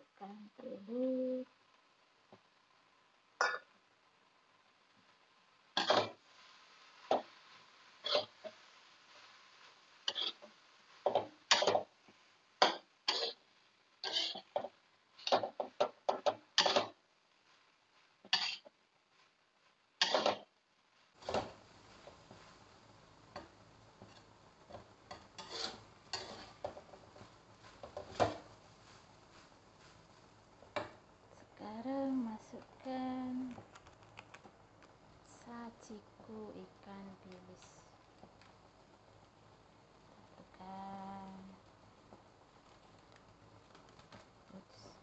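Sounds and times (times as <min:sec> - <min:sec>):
spatula scraping a wok: 0:05.8 - 0:11.9, 0:12.6 - 0:18.8, 0:20.0 - 0:20.4, 0:23.3 - 0:30.1.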